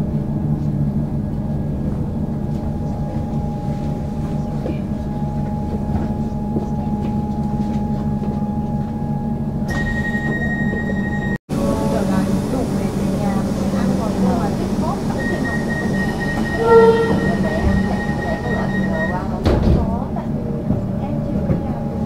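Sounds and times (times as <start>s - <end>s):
train rumble and hum: 0.0s - 22.0s
high steady tone: 13.5s - 19.4s.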